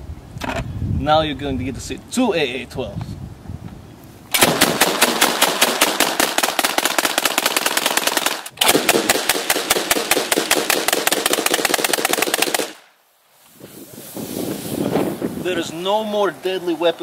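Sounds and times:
automatic shotgun bursts: 0:04.3 - 0:12.8.

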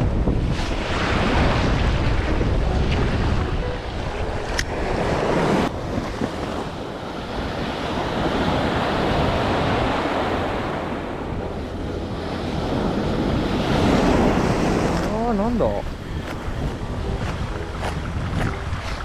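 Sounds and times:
wind rumbling on microphone: 0:00.0 - 0:19.0
surf breaking on beach: 0:04.8 - 0:11.2, 0:12.3 - 0:19.0.

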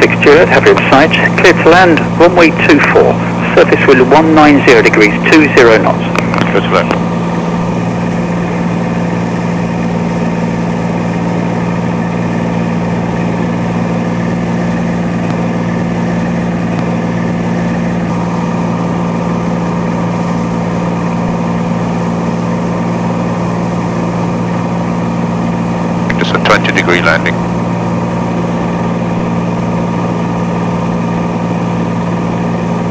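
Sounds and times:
aircraft engine and propeller droning: 0:00.0 - 0:32.9.

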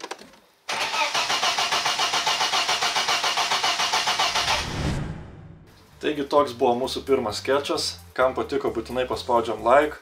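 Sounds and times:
starter motor cranking engine: 0:00.0 - 0:04.6.

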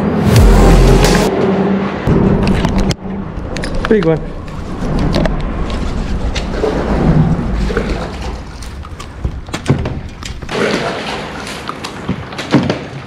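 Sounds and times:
water splashing: 0:04.4 - 0:12.5.

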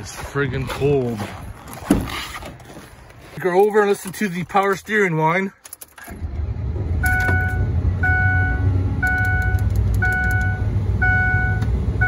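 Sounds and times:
dashboard warning chime: 0:07.0 - 0:11.7.

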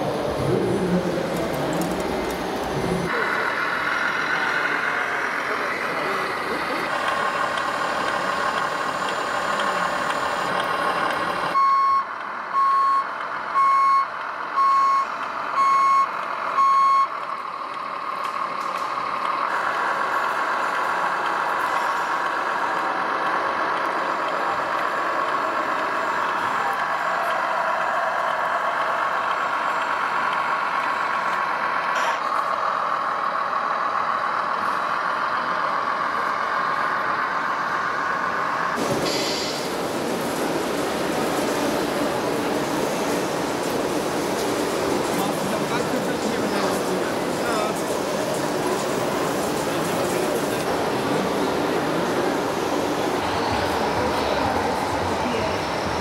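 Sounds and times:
simulated diesel engine sound: 0:00.0 - 0:56.0
reversing beeps: 0:11.6 - 0:17.2.

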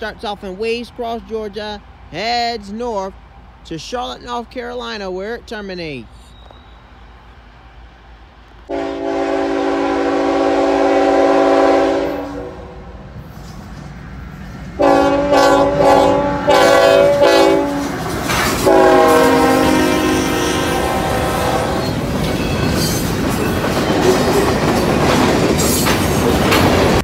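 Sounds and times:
rail noise of passing freight cars: 0:00.0 - 0:27.0
locomotive air horn blasts: 0:08.7 - 0:12.9, 0:14.8 - 0:17.9, 0:18.6 - 0:21.9.

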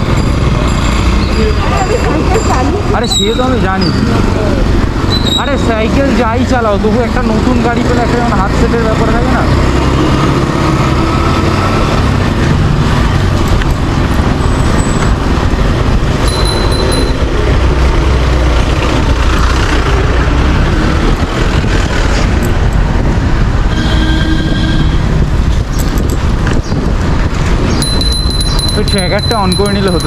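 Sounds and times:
road traffic noise: 0:00.0 - 0:30.0
wind on microphone: 0:10.2 - 0:29.5
horn-like tone: 0:23.7 - 0:25.0.

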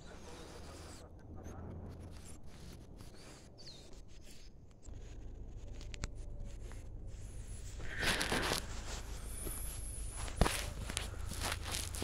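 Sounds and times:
footsteps: 0:07.6 - 0:12.0.

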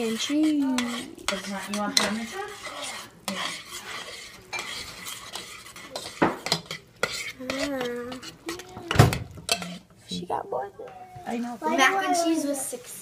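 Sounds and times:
spoon scraping a saucepan: 0:00.0 - 0:10.2.

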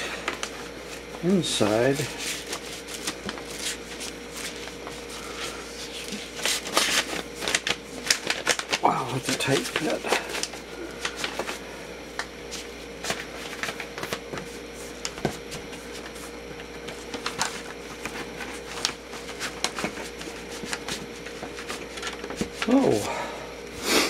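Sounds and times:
cardboard sleeves rustling and scraping: 0:00.2 - 0:11.6.

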